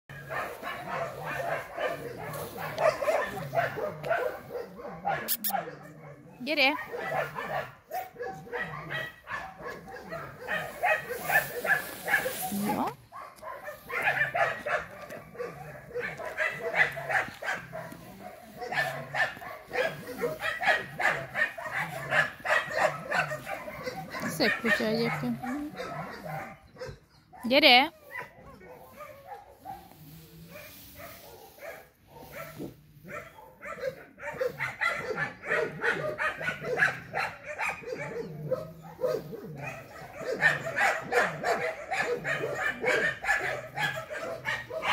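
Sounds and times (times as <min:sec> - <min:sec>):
dog barking rapidly: 0:00.1 - 0:29.9, 0:31.0 - 0:44.9
dog making short vocal sounds: 0:05.2 - 0:05.6.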